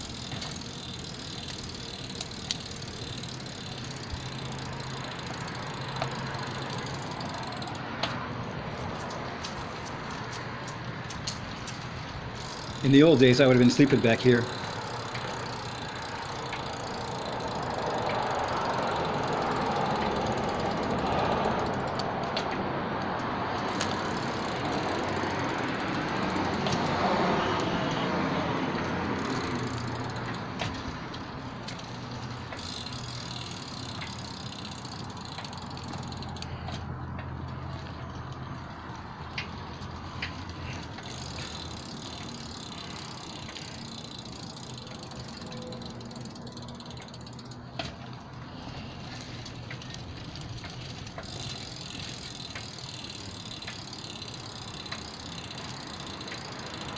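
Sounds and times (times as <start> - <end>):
car passing: 0.0 - 56.9.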